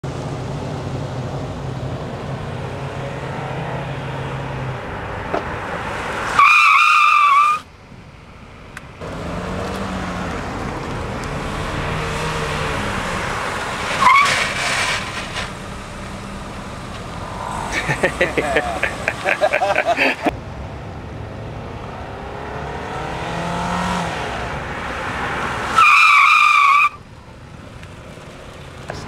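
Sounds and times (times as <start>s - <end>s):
tyres squealing: 6.0s - 7.7s, 11.0s - 20.3s, 25.7s - 27.2s
car engine accelerating: 7.6s - 29.0s.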